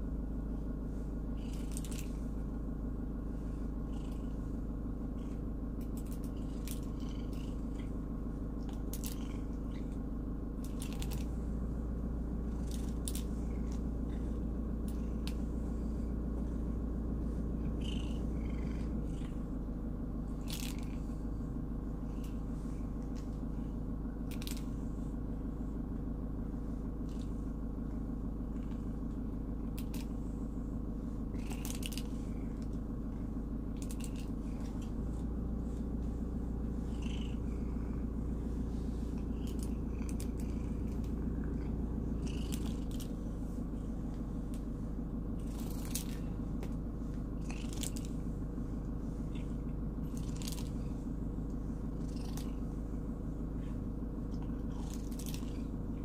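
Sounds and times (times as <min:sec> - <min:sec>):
cat purring: 0:00.1 - 0:56.0
brush strokes through fur: 0:34.4 - 0:55.1.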